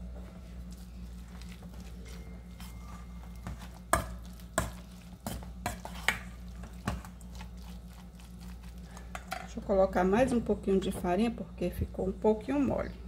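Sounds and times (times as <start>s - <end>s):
steady low hum: 0.0s - 13.0s
spoon stirring in metal bowl: 0.7s - 9.6s.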